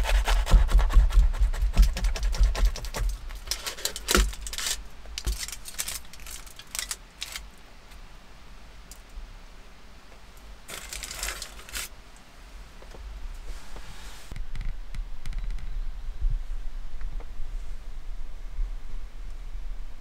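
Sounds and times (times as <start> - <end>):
foil crinkling: 1.8 - 7.5, 10.7 - 11.9.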